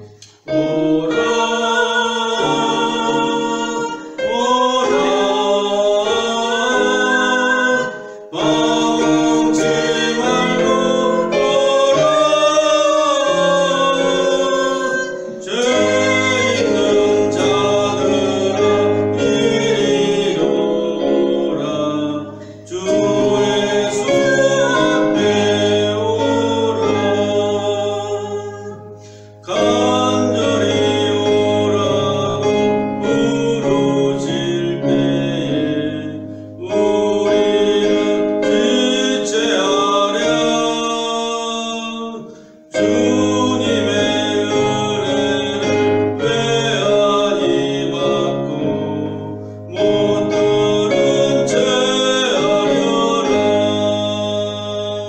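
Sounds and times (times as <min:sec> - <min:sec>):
instrumental backing track: 0:00.0 - 0:41.1
man and woman singing a hymn: 0:00.0 - 0:55.0.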